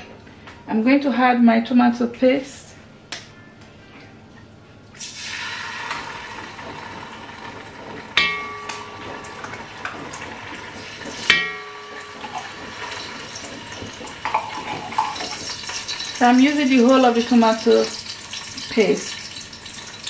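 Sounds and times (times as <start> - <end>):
paste sizzling in hot oil: 5.0 - 7.7.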